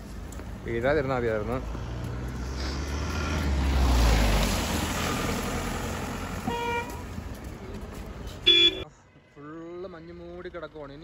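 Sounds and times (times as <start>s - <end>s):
car driving past: 1.1s - 8.2s
car horn toots: 6.4s - 7.0s, 8.4s - 8.9s.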